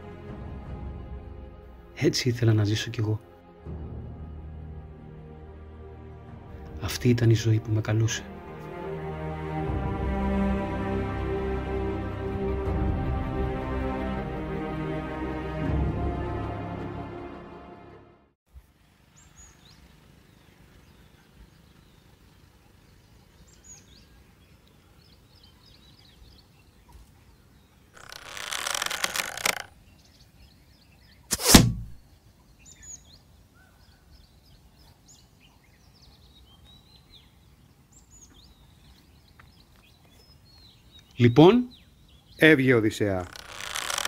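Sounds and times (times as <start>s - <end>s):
small birds chirping: 19.0s - 31.4s, 32.0s - 44.0s
arrow striking target thunk: 31.3s - 32.0s
arrow whooshing: 31.3s - 32.0s.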